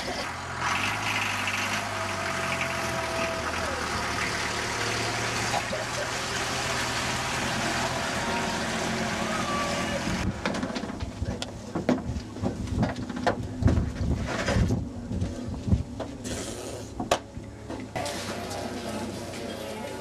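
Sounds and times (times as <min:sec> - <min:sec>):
motorhome engine running: 0:00.0 - 0:20.0.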